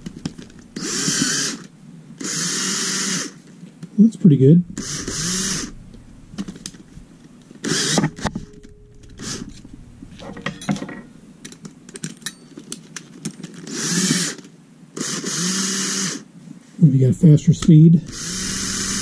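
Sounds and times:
cordless drill motor spinning: 0:00.0 - 0:03.4, 0:04.8 - 0:05.8, 0:07.6 - 0:09.6, 0:13.6 - 0:16.2, 0:18.0 - 0:19.0
clicks and rattles of metal attachments: 0:07.7 - 0:14.6.

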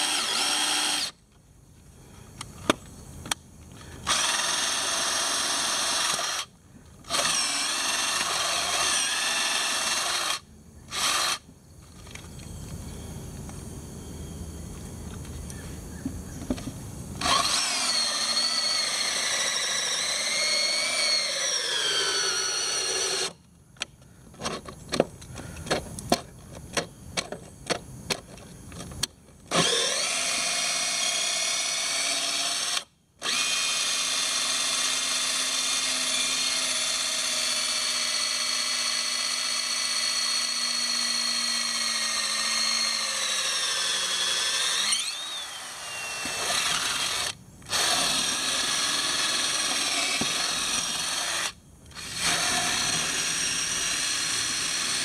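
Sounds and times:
power drill boring through wood: 0:00.0 - 0:01.2, 0:04.0 - 0:11.5, 0:17.2 - 0:23.4, 0:29.5 - 0:55.0.

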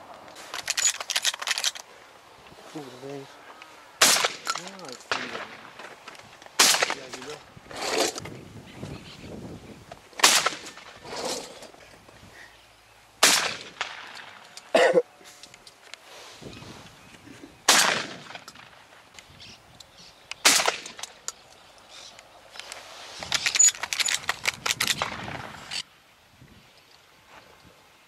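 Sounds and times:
shotgun shots: 0:04.0 - 0:05.7, 0:06.6 - 0:07.3, 0:10.2 - 0:10.9, 0:13.2 - 0:14.4, 0:17.7 - 0:18.8, 0:20.4 - 0:21.0.

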